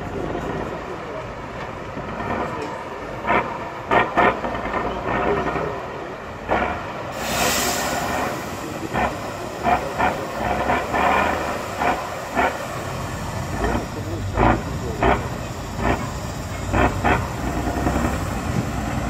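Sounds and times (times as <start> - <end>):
diesel truck engine under load: 0.0 - 19.0
loud hiss: 7.1 - 14.3.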